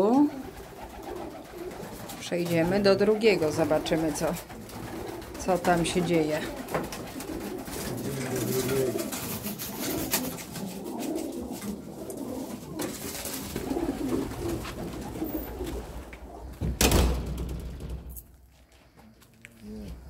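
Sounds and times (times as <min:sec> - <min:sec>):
pigeons cooing: 0:00.0 - 0:16.7
loud sudden thump: 0:16.6 - 0:18.0.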